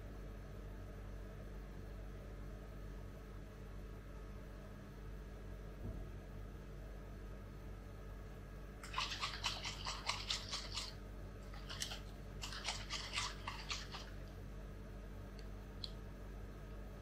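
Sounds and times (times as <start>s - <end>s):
plastic bottle of liquid shaken: 8.8s - 14.4s.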